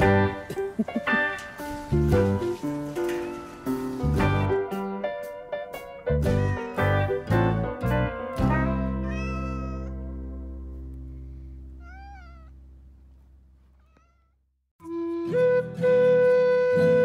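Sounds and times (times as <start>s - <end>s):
music: 0.0s - 11.8s, 14.8s - 17.0s
cat meowing: 6.2s - 7.0s, 8.9s - 10.1s, 11.8s - 12.6s, 13.7s - 14.4s.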